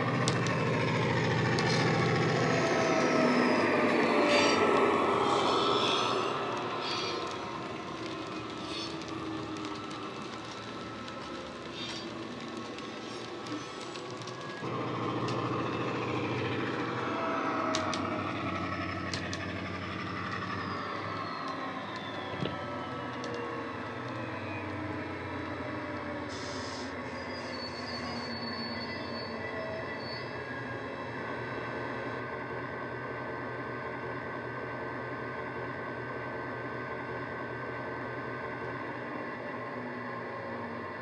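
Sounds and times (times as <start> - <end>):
model locomotive diesel drone: 0.0 - 41.0
sharp clicks from track: 17.7 - 18.1.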